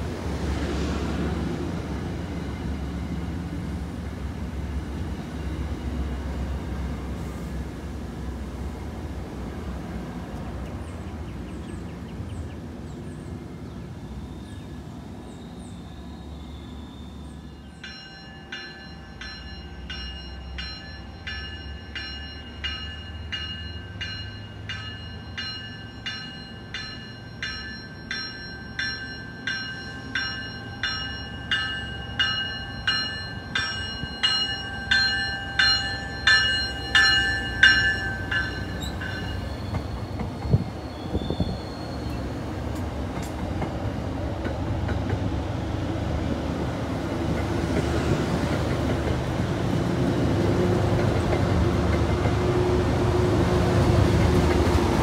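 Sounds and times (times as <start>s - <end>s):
train rumbling: 0.0s - 55.0s
train warning bell ringing: 17.4s - 40.8s.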